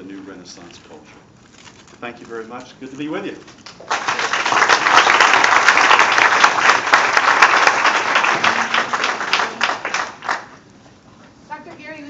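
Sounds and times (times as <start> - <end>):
audience applauding: 3.6 - 10.6.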